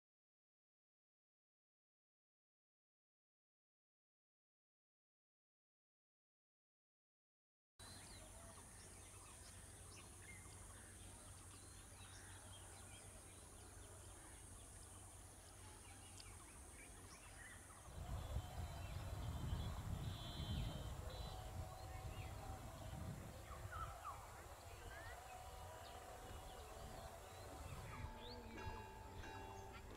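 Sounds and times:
birds chirping: 0:07.8 - 0:29.9
wind buffeting microphone: 0:17.8 - 0:29.9.

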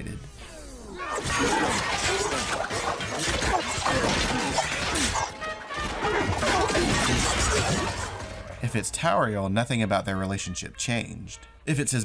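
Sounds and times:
crashes and smashing impacts: 0:01.1 - 0:08.8
orchestral music: 0:03.7 - 0:11.0.

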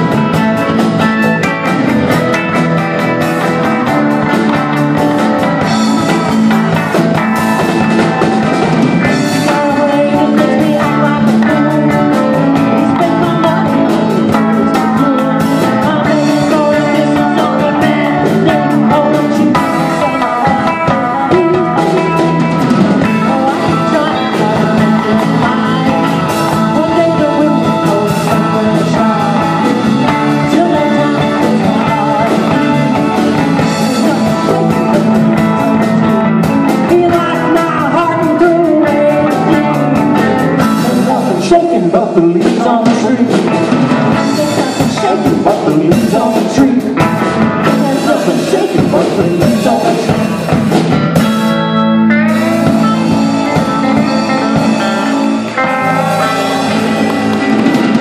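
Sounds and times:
drums: 0:00.0 - 0:58.0
electric guitars: 0:00.0 - 0:58.0
woman singing: 0:07.4 - 0:50.6.

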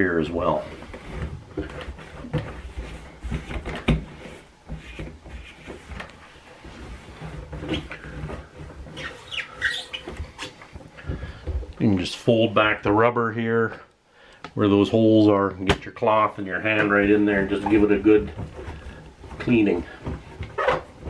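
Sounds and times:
cloth rubbing rubber gasket: 0:00.5 - 0:10.6
short high squeaks: 0:09.0 - 0:10.1.

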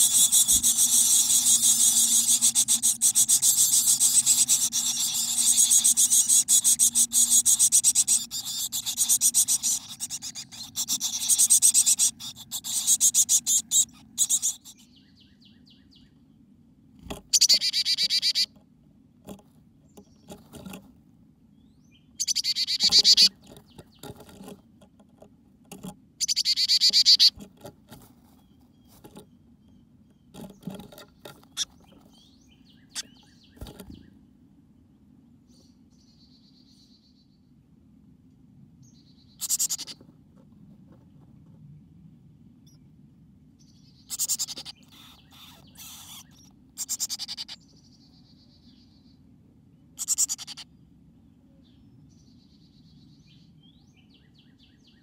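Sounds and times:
birds rustling in nest: 0:00.0 - 0:14.6, 0:20.2 - 0:21.0, 0:22.9 - 0:26.0, 0:27.0 - 0:29.3, 0:30.3 - 0:32.2, 0:33.0 - 0:34.0
high-pitched pulsing bird calls: 0:00.0 - 0:16.1, 0:17.3 - 0:18.5, 0:21.8 - 0:23.4, 0:26.2 - 0:27.4, 0:39.3 - 0:40.0, 0:44.0 - 0:49.0, 0:50.0 - 0:50.7.

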